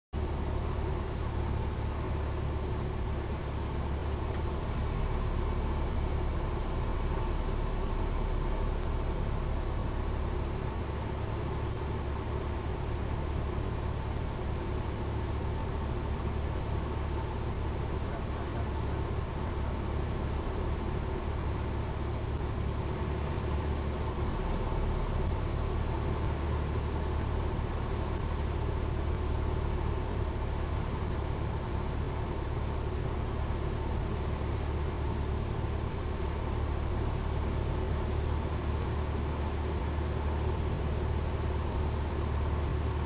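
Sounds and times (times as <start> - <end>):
propeller plane engine droning: 0.2 - 43.0.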